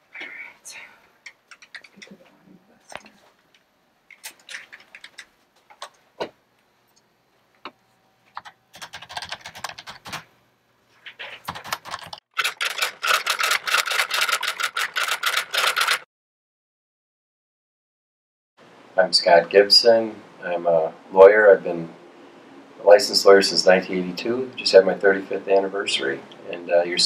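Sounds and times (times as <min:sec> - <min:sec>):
keyboard typing: 0:01.2 - 0:02.2, 0:04.1 - 0:06.0, 0:08.4 - 0:10.3, 0:11.1 - 0:16.0.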